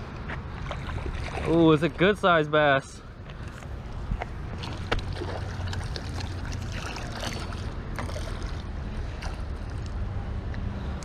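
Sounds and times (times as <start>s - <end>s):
fish splashing at surface: 4.6s - 9.8s.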